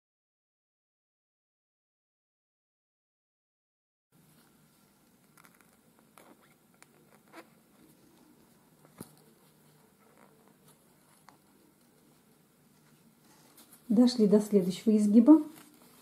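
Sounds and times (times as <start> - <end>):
soft clicks and rustles: 4.2 - 13.9, 15.4 - 16.0
low steady hum: 4.2 - 16.0.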